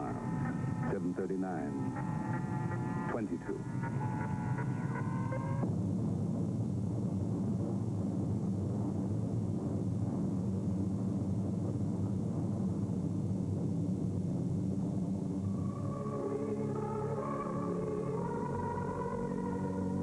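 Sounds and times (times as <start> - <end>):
steady high tones: 0.0 - 5.6, 15.4 - 20.0.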